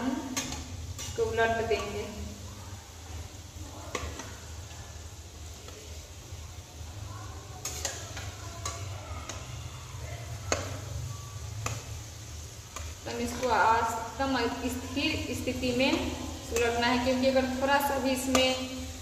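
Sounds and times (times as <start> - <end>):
metal spatula scraping a pan: 0.0 - 2.4, 7.6 - 19.0
food deep-frying in oil: 0.0 - 19.0.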